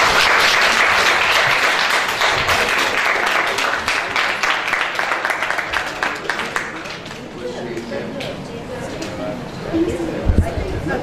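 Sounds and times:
small audience applauding: 0.0 - 7.5.

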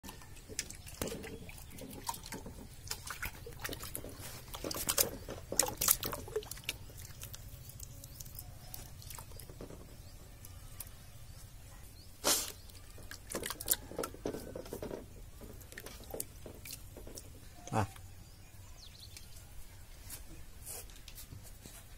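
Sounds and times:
wet squelches and splashes: 0.1 - 9.6, 12.3 - 14.8.

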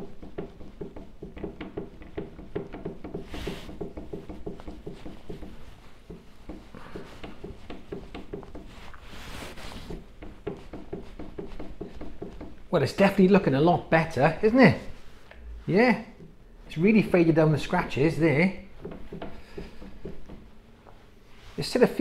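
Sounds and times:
cloth rubbing on plastic: 3.1 - 12.7, 21.3 - 22.0.

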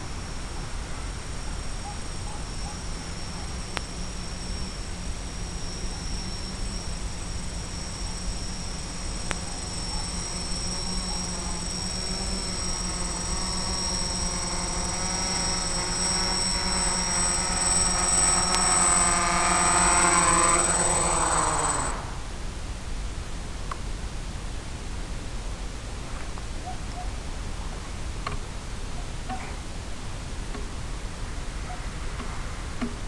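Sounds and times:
motor hum passing by: 0.0 - 22.6
high-pitched electronic whine: 0.0 - 23.0.

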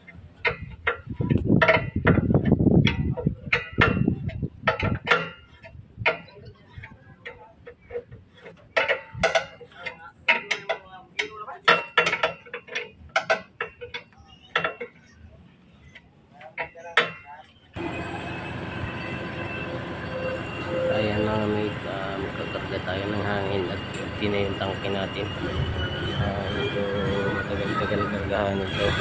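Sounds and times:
metal wrenches clicking on fittings: 0.4 - 15.0.

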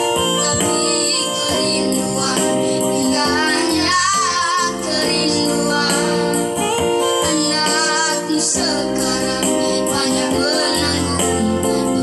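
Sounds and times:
electronic keyboard: 0.0 - 12.0
boys singing into a microphone: 0.3 - 12.0.

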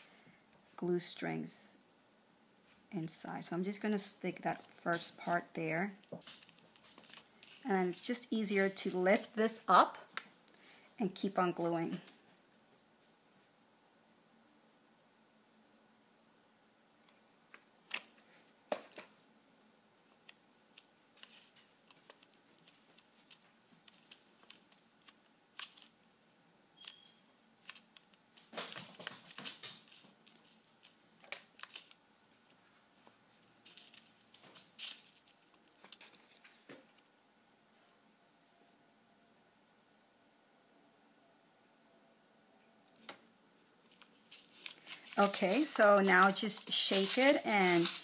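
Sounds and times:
plastic sheet crinkling: 6.0 - 9.4, 20.7 - 26.0, 26.8 - 37.0, 43.8 - 48.0
rustling: 6.0 - 9.6, 20.1 - 26.0, 26.8 - 37.1, 43.0 - 48.0.

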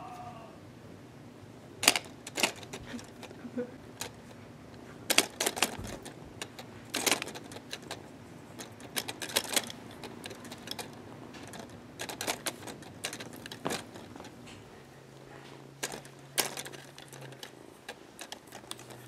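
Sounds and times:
plastic toy clicks and taps: 5.1 - 8.0.

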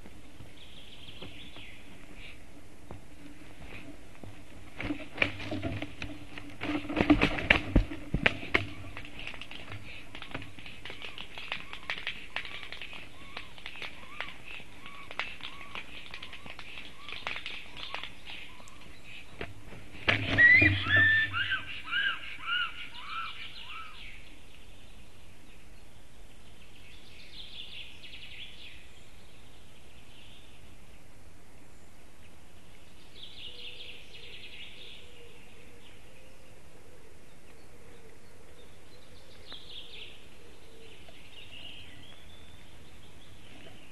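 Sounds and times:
songbirds singing: 0.0 - 43.9
repeated bird calls: 4.9 - 30.6.

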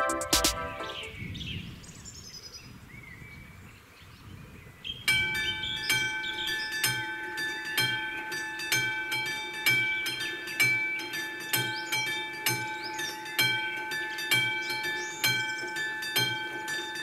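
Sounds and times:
faint birdsong: 0.0 - 17.0
level-crossing warning bell: 5.1 - 17.0.

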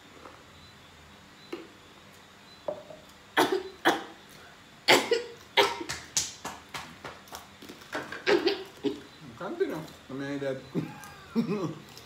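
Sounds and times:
person coughing: 4.9 - 5.9, 8.3 - 9.0.

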